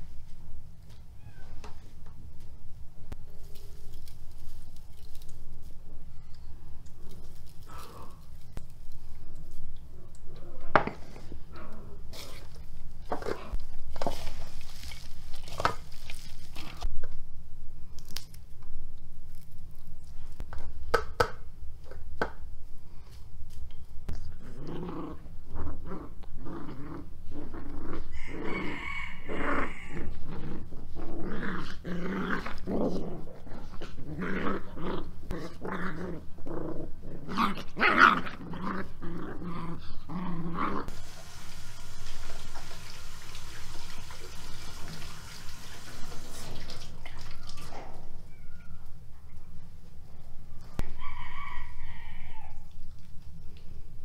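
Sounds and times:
puppies growling and yapping: 24.1 - 41.0
steady background hiss: 40.9 - 47.0.

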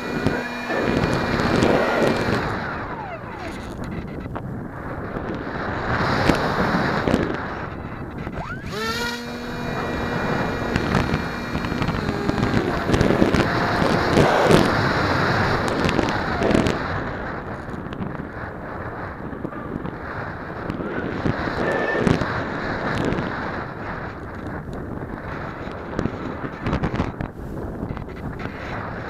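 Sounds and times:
electric motor whining: 0.0 - 17.6
wind rushing over microphone: 0.0 - 29.0.

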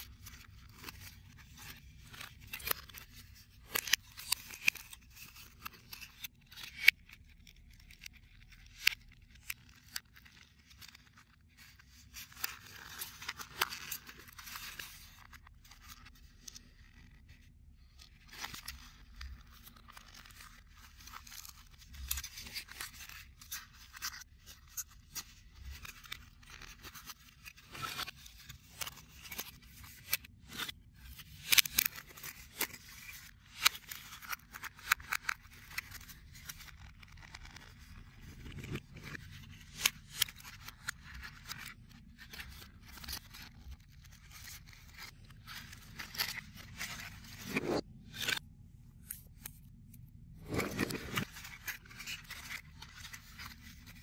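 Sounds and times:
card scraping against card: 44.2 - 48.4, 50.4 - 54.0.

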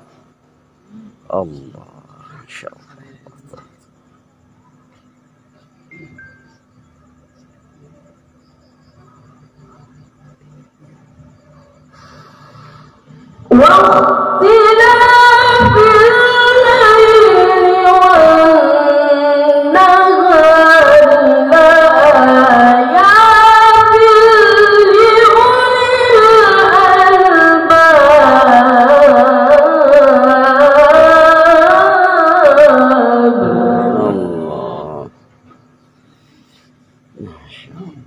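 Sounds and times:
boy reciting melodically: 13.5 - 35.1.

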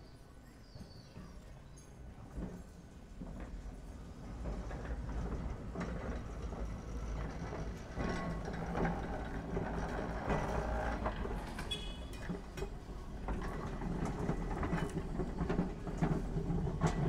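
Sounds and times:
tram humming on track: 0.0 - 17.0
tram clicks and rattles: 0.7 - 17.0
high squeal of tram: 6.8 - 12.6.

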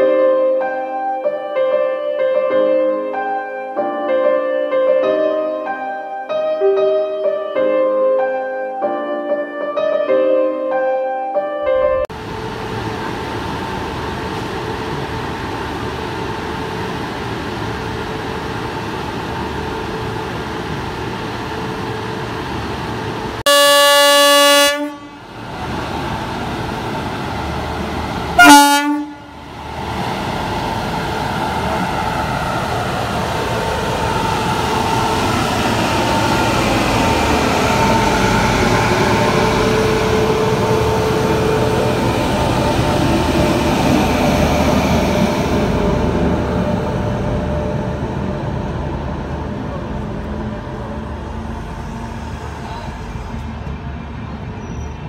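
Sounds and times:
train running noise: 11.8 - 55.0
locomotive blower hum: 12.2 - 54.4
locomotive horn blast: 23.5 - 25.3, 28.4 - 29.3.

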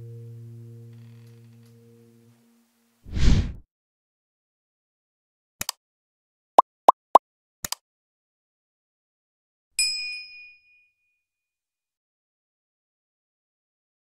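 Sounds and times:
bright bell-like ding: 9.8 - 11.2.

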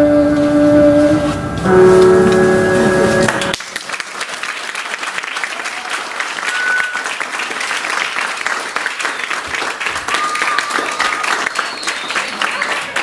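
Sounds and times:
recorded music with sustained notes: 0.0 - 3.6
audience applauding: 2.3 - 13.0.

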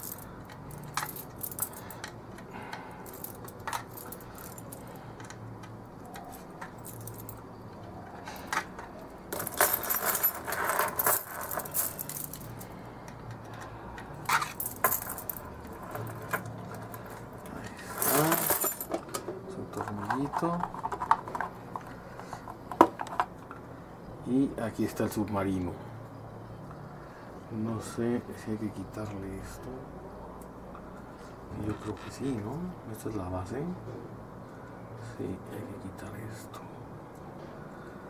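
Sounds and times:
plastic clattering and rustling: 15.9 - 23.4.

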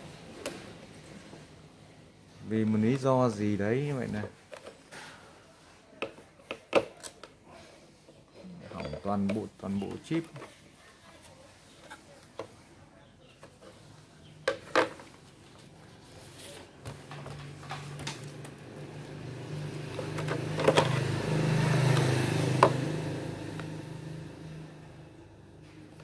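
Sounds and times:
passing vehicle engine: 17.5 - 26.0.

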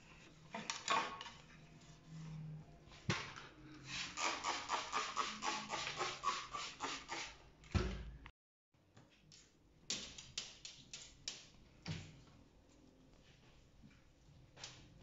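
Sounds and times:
spray bottle squirts: 4.0 - 7.4.

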